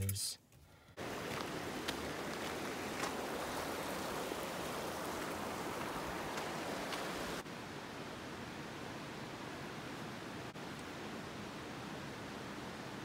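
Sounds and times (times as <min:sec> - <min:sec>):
footsteps on gravel: 0:01.0 - 0:04.6, 0:05.2 - 0:07.4.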